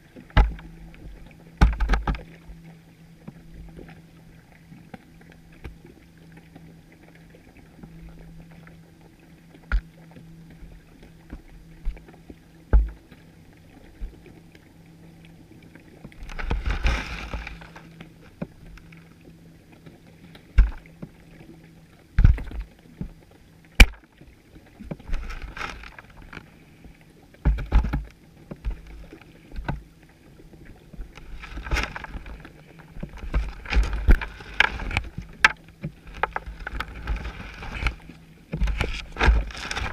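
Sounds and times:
underwater knocks and bumps: 0:00.0 - 0:02.4, 0:12.7 - 0:13.2, 0:16.0 - 0:19.0, 0:20.5 - 0:21.2, 0:22.1 - 0:23.2, 0:23.8 - 0:24.1, 0:27.4 - 0:29.9, 0:30.9 - 0:39.9.

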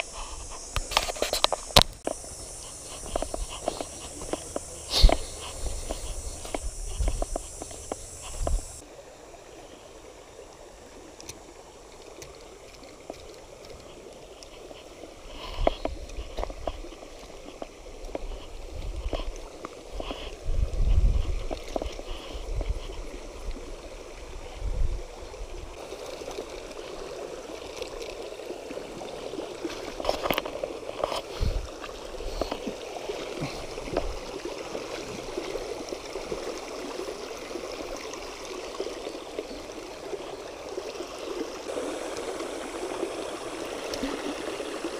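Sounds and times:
water rushing over rocks: 0:25.4 - 0:44.9.

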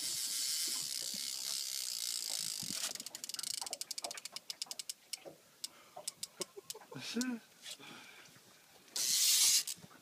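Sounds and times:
fishing reel drag clicking: 0:00.0 - 0:05.0, 0:09.0 - 0:09.8.

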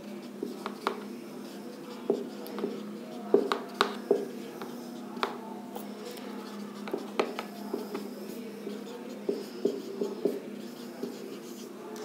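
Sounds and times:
marker writing on whiteboard: 0:00.0 - 0:11.7.

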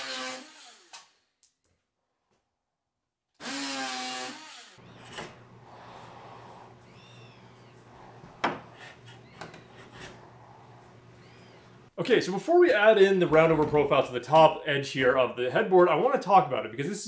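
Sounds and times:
power tool whining: 0:00.0 - 0:01.1, 0:03.4 - 0:05.6
scraping against wood: 0:04.9 - 0:11.8
short squeaks: 0:11.2 - 0:11.8.

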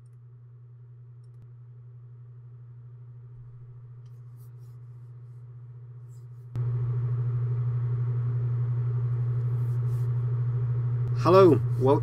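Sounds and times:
click: 0:00.0 - 0:00.2, 0:01.2 - 0:01.5
low hum: 0:00.0 - 0:12.0.

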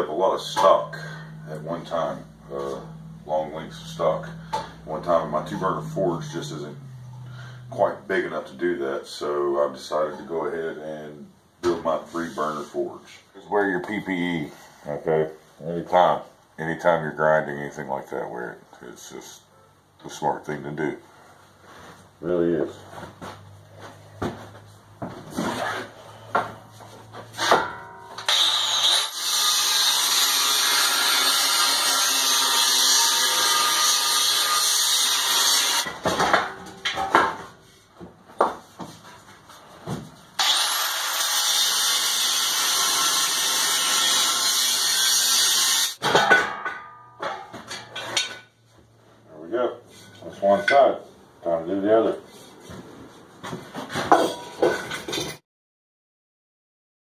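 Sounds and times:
angle grinder cutting steel: 0:27.4 - 0:35.9, 0:40.4 - 0:46.0
metal knocks and clatter: 0:35.8 - 0:37.6, 0:46.0 - 0:48.6, 0:53.6 - 0:55.4.

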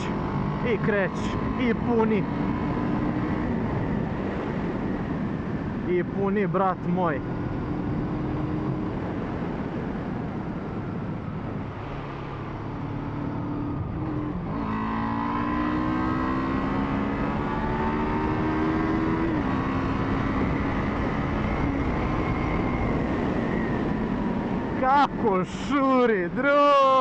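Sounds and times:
motorcycle engine under throttle: 0:00.0 - 0:05.6, 0:12.4 - 0:24.8
wind noise on microphone: 0:00.0 - 0:26.4.

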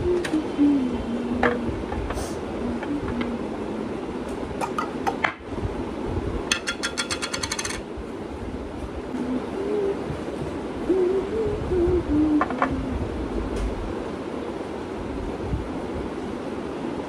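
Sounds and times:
steady low rumble: 0:00.0 - 0:06.5, 0:07.8 - 0:17.0.

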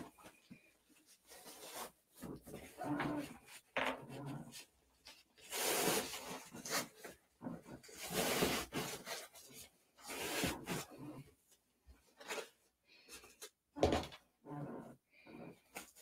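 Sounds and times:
objects rubbing and rustling: 0:00.0 - 0:16.0.

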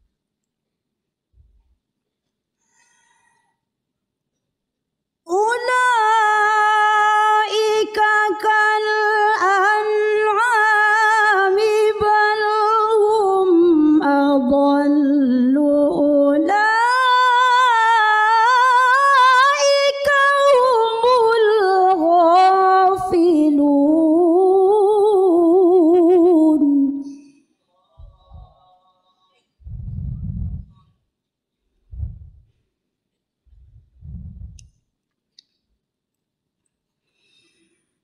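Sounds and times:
woman reciting melodically: 0:05.3 - 0:27.3.

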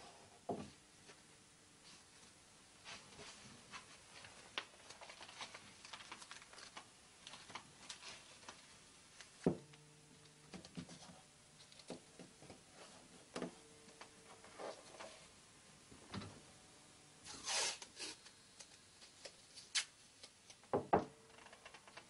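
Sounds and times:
low steady hum: 0:00.0 - 0:17.3
rustling: 0:01.8 - 0:09.4.

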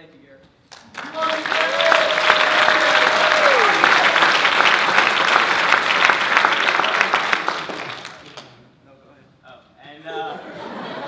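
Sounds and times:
audience clapping: 0:00.7 - 0:08.6
person whooping: 0:01.2 - 0:04.2.

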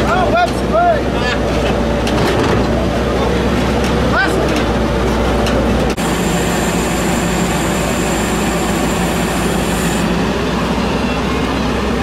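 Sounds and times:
truck engine running: 0:01.5 - 0:12.0
thin high whine: 0:06.0 - 0:10.4.

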